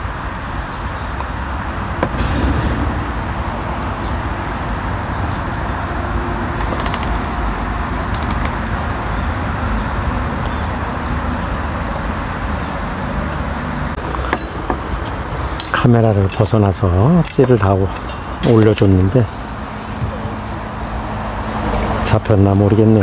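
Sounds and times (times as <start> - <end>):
low rumble: 1.7 - 6.5
quick clicks: 8.1 - 8.8.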